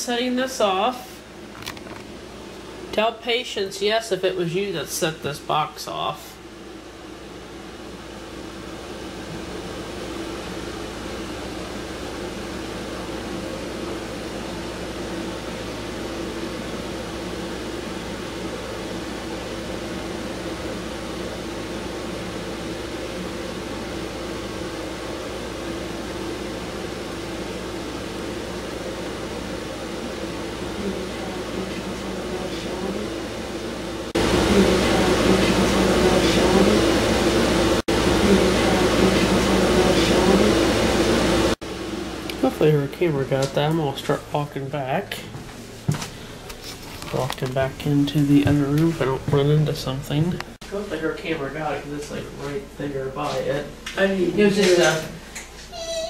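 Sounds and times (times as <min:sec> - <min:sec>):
air conditioners humming: 0:00.0 - 0:56.0.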